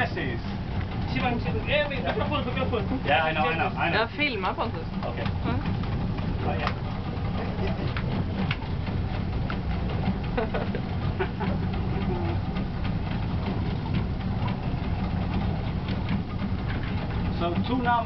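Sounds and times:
boat engine idling: 0.0 - 18.0.

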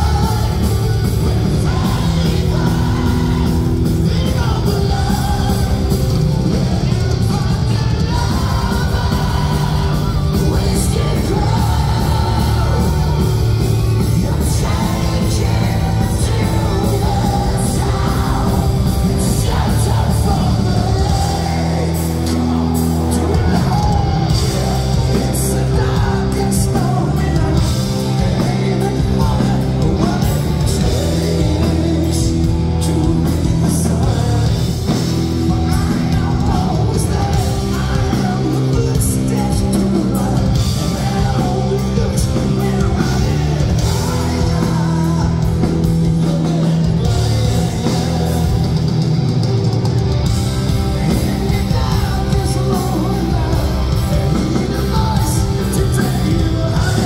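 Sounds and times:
live metal band playing: 0.0 - 57.0
person singing lead vocals: 0.0 - 57.0.

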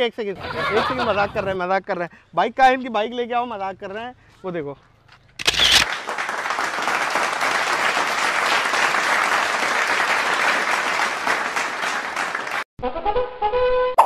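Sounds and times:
applause: 5.8 - 12.7.

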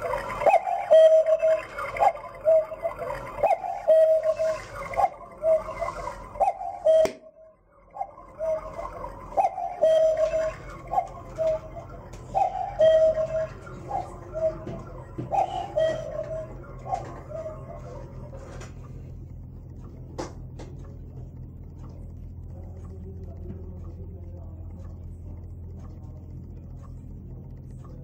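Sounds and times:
cuckoo clock call: 0.0 - 28.0
clock mechanism click: 8.0 - 28.0.

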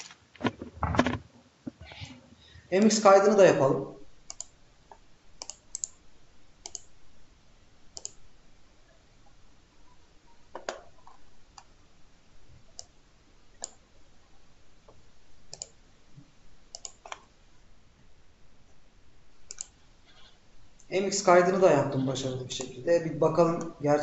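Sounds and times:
mouse and keyboard clicks: 6.6 - 6.9, 15.5 - 15.8, 16.7 - 17.3, 19.5 - 20.3.

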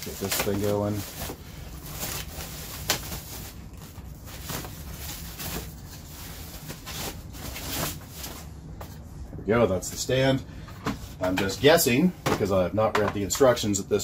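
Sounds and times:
plastic bag rustling: 0.0 - 8.5.

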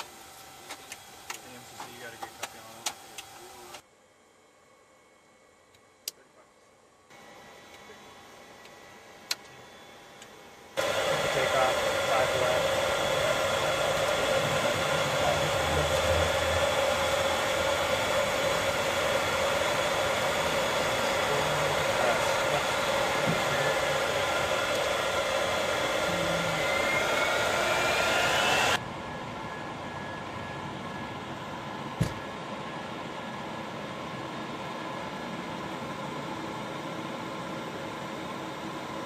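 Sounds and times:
jet engine whine: 7.1 - 39.0
rising tone: 10.8 - 28.8
jet engine roar: 10.8 - 39.0.

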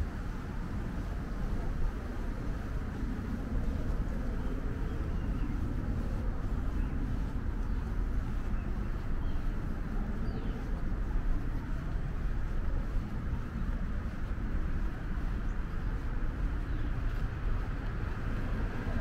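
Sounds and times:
distant road traffic rumble: 0.0 - 19.0.

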